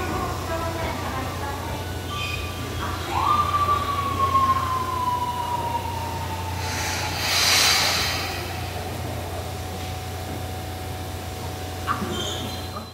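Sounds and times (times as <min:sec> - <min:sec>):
low steady hum: 0:06.4 - 0:11.7
compressed air hiss: 0:06.6 - 0:09.8.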